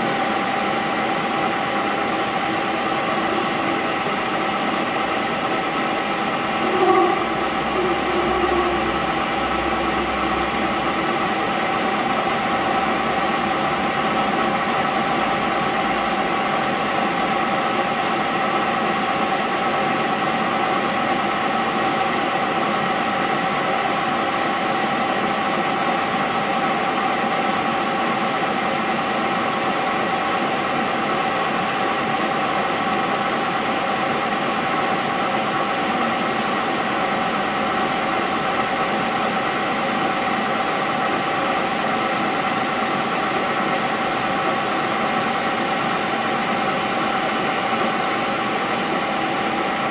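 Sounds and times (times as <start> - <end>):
metal lathe whining: 0.0 - 21.5.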